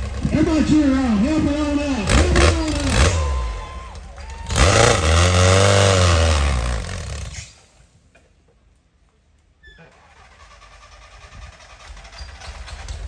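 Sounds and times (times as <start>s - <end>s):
race buggy engine revving: 0.0s - 7.8s.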